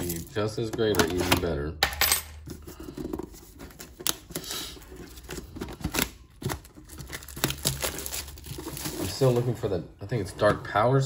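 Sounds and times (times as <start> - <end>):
plastic wrap crinkling: 3.8 - 9.8.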